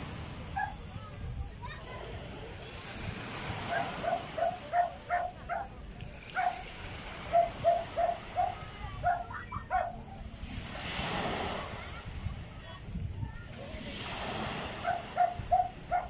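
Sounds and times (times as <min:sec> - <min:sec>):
wave washing on shore: 0:00.0 - 0:16.0
dog barking: 0:00.6 - 0:00.8, 0:03.7 - 0:05.7, 0:06.3 - 0:06.6, 0:07.3 - 0:10.0, 0:14.8 - 0:16.0.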